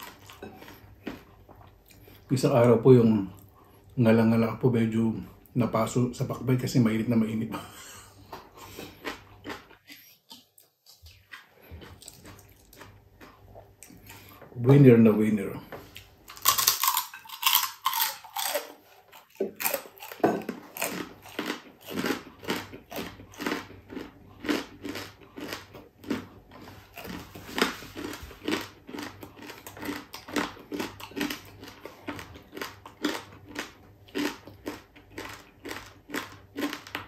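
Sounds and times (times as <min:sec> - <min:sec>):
crunchy chewing: 0:00.0 - 0:02.3, 0:08.2 - 0:14.4, 0:15.9 - 0:37.0.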